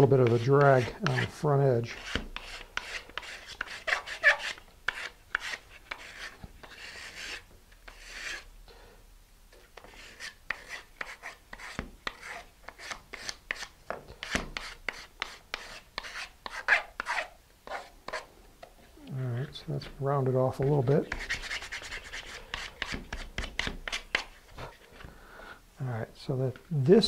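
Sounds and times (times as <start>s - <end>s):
sandpaper rasping on wood: 0.0s - 8.4s, 9.8s - 18.3s.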